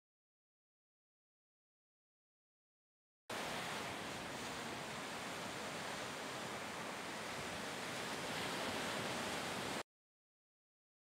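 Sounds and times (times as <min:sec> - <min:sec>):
waves breaking: 0:03.3 - 0:09.8.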